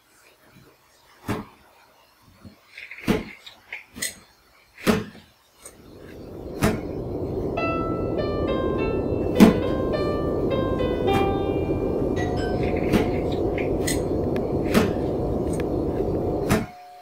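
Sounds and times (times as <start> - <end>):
low rushing noise: 5.8 - 16.7.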